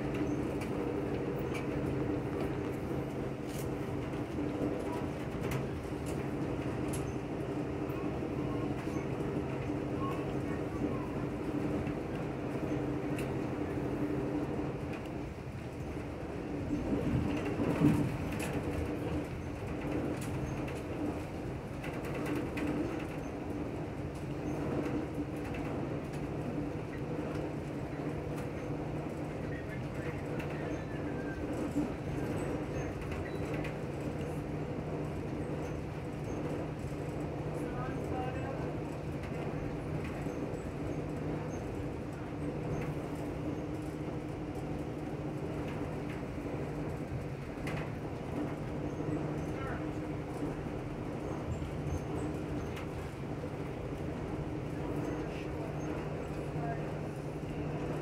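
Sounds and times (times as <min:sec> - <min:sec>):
train rumble and hum: 0:00.0 - 0:58.0
light clicks and rattles: 0:35.0 - 0:50.8.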